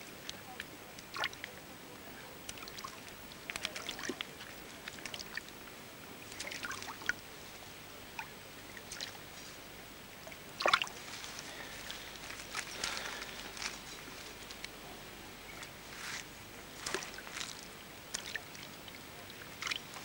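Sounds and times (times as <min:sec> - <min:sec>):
water splashing and dripping: 0:02.4 - 0:05.5, 0:06.3 - 0:07.2, 0:10.2 - 0:13.2, 0:16.8 - 0:20.0.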